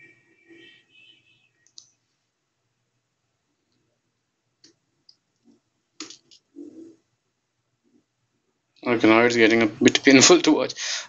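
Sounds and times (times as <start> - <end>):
faint isolated clicks: 1.6 - 2.0.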